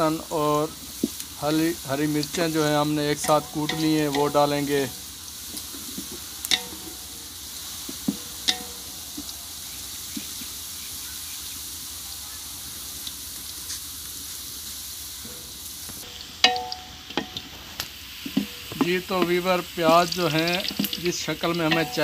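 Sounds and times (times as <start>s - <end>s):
onions sizzling in a pot: 0.0s - 22.0s
wooden spatula knocking and scraping pot: 1.9s - 7.1s, 16.4s - 22.0s.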